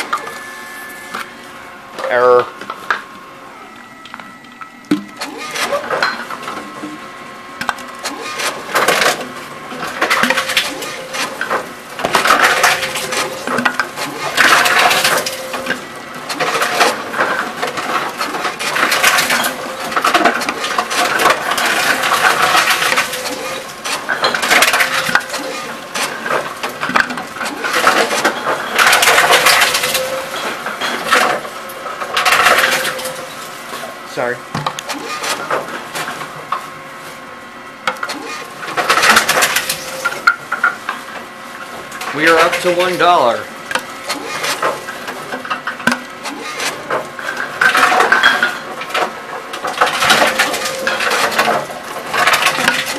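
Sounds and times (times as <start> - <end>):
machine hum: 0.0 - 52.9
plastic bottles being crushed: 7.6 - 33.5, 43.8 - 52.9.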